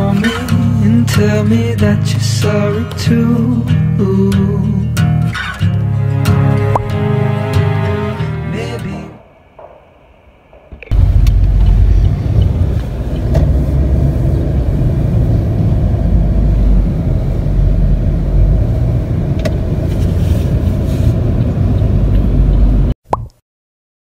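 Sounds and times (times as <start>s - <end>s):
cars driving past: 5.5s - 8.6s, 9.2s - 22.9s.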